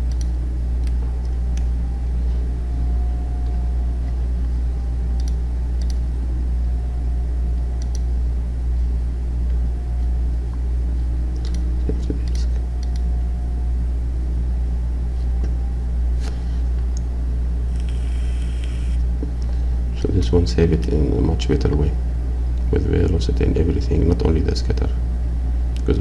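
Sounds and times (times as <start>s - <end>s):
computer mouse clicks: 0.0s - 1.7s, 5.2s - 6.0s, 7.8s - 8.1s.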